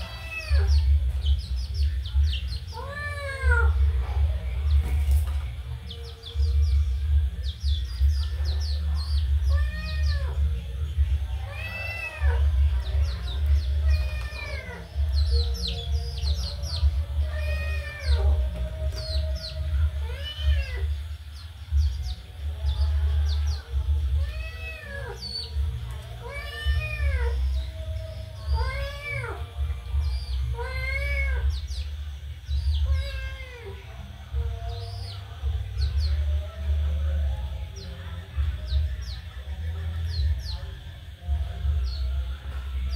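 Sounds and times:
chicks and ducklings peeping: 0.0 - 42.9
steady low hum: 0.0 - 42.9
kitten meowing: 9.5 - 10.4, 13.8 - 14.9, 26.2 - 27.4, 32.8 - 33.7.

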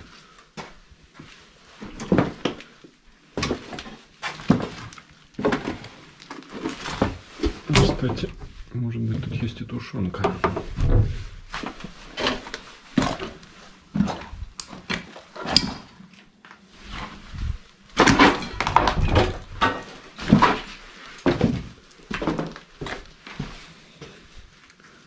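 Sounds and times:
footsteps crunching on rubble: 16.3 - 24.6.

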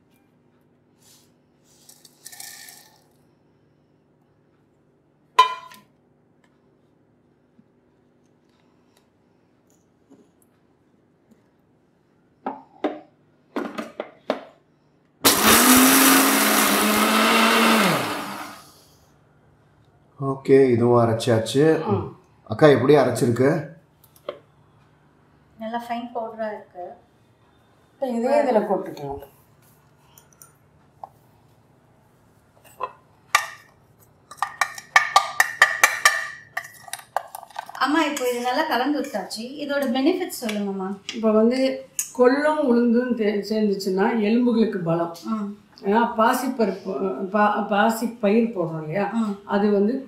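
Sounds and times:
mixer grinder motor grinding: 15.2 - 18.7.

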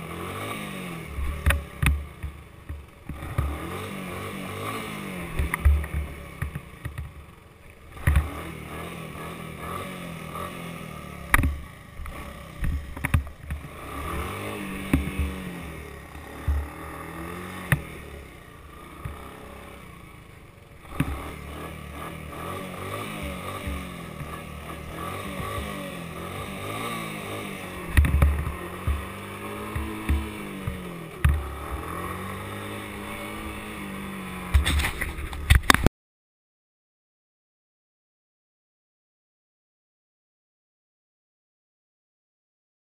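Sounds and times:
three-wheeler engine revving: 0.0 - 35.9
sharp knocks and thumps: 14.8 - 15.4, 27.9 - 31.8.

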